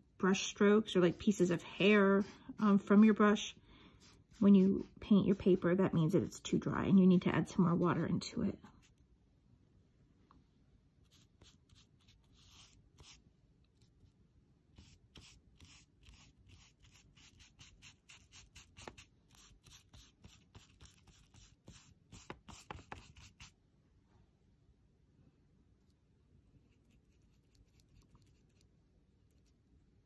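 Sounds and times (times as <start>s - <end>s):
brush swishing on paper: 0.4s - 6.0s, 11.0s - 13.2s, 14.8s - 23.6s, 26.6s - 28.7s.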